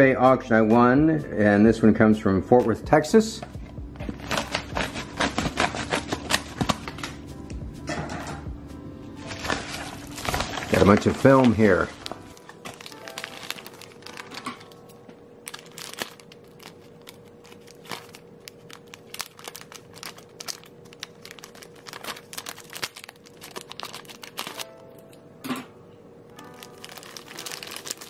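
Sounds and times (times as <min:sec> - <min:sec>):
plastic wrapping crinkling: 0:04.0 - 0:07.1, 0:09.2 - 0:14.8, 0:15.4 - 0:24.7, 0:26.4 - 0:28.0.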